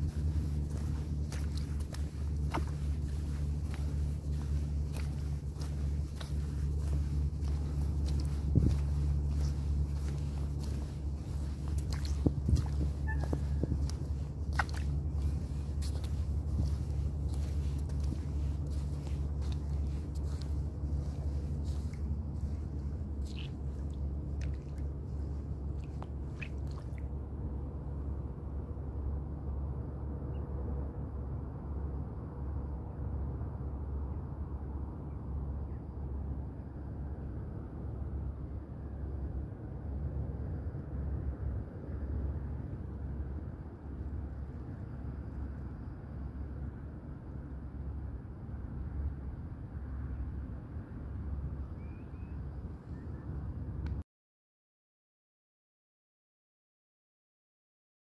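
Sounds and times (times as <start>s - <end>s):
footsteps on wet sand: 0.0s - 27.1s
wind buffeting microphone: 0.0s - 27.2s
low hum: 0.0s - 54.0s.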